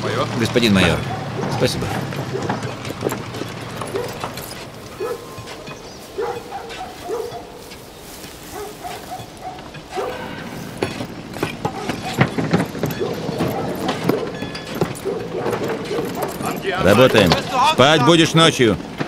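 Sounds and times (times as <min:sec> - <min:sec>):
metallic clatter: 0:00.0 - 0:19.0
dog barking: 0:00.8 - 0:17.5
sharp knocks: 0:01.1 - 0:07.8.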